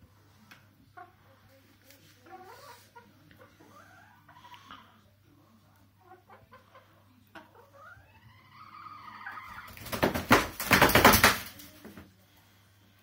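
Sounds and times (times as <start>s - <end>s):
chicken squawking: 7.8s - 9.9s
wings flapping: 9.7s - 11.8s.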